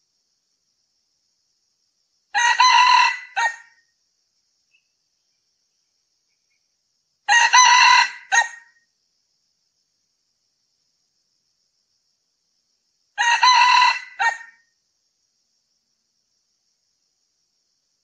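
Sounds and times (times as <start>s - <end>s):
rooster crowing: 2.3s - 3.8s, 7.3s - 8.7s, 13.2s - 14.6s.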